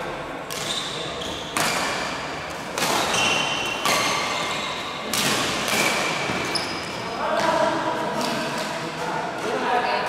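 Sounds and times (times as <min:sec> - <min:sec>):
rackets striking shuttlecock: 0:00.5 - 0:00.8, 0:01.5 - 0:08.8.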